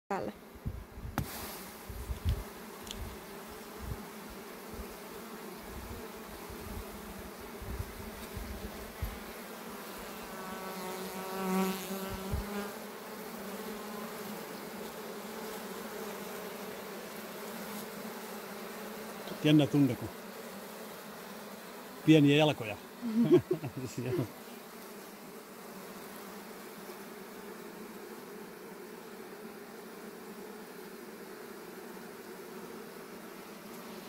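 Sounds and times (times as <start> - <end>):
bee buzzing close by: 0.1 - 34.0
honeybees humming: 0.1 - 34.0.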